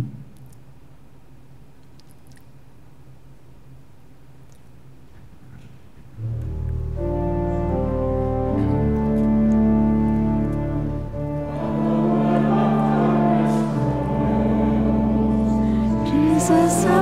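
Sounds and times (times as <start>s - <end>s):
church organ chords: 6.2s - 17.0s.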